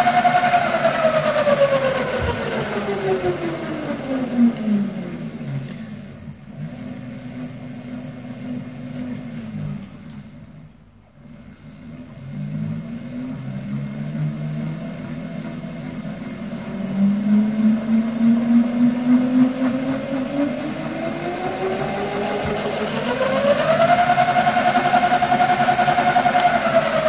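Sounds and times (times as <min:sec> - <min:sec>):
electric motor whine: 0:11.9 - 0:27.0.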